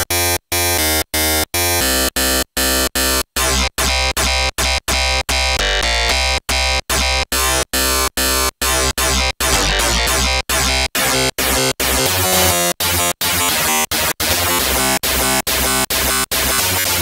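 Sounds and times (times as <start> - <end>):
chopped synthesizer notes: 0.0 - 17.0
pulsing synth bass: 3.4 - 16.2.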